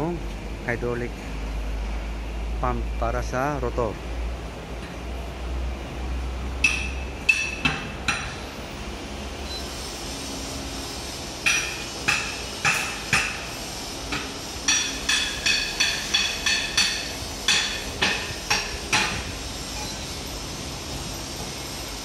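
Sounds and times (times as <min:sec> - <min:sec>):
hammer striking metal: 0:06.6 - 0:08.4, 0:11.4 - 0:13.5, 0:14.1 - 0:19.9.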